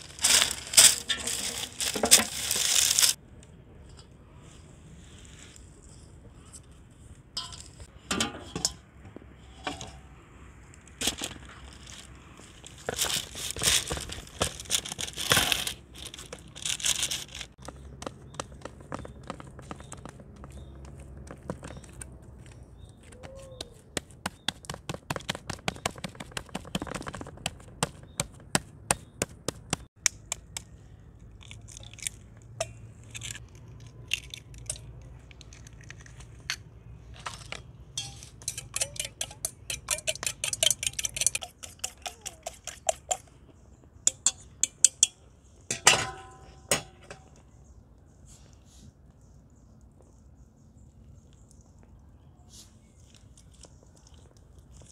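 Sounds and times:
egg cracking: 29.9s - 36.6s.

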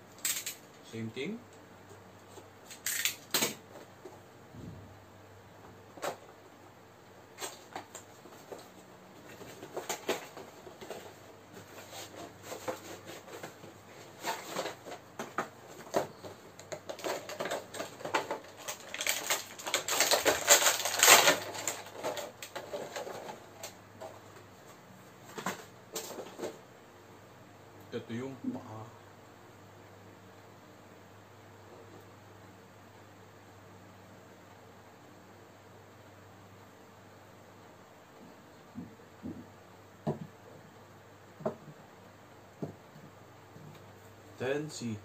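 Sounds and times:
plastic packaging rustling: 7.4s - 24.2s.

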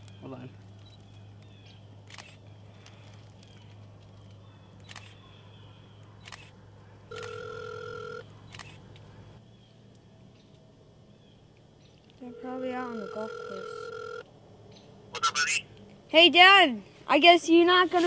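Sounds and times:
camera shutter clicking: 2.1s - 2.4s, 6.2s - 6.5s, 8.5s - 8.8s.

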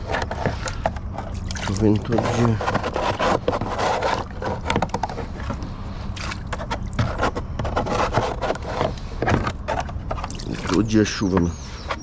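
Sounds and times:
plastic knocking against hull: 0.0s - 5.7s
water scooping and splashing: 0.0s - 8.8s, 10.1s - 11.2s.

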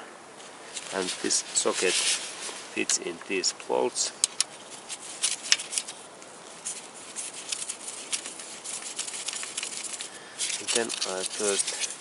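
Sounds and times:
metal rubbing: 4.2s - 12.0s.

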